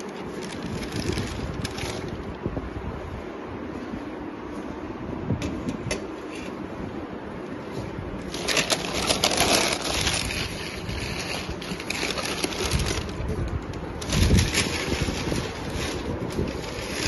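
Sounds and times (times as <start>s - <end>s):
newspaper rustling: 0.0s - 2.3s, 8.2s - 17.0s.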